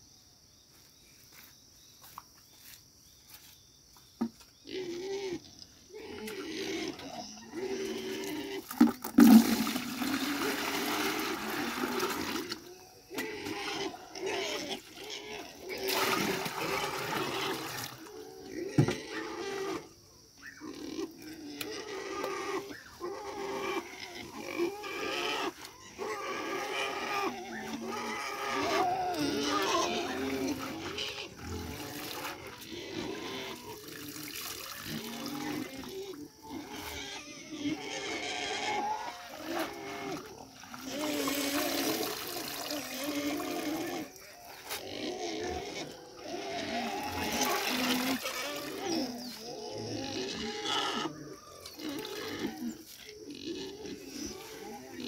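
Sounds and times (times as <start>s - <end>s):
farm animals calling: 4.2s - 55.0s
water sloshing in bucket: 8.2s - 13.2s, 15.7s - 18.1s, 29.1s - 36.1s, 39.2s - 44.8s, 46.9s - 49.5s.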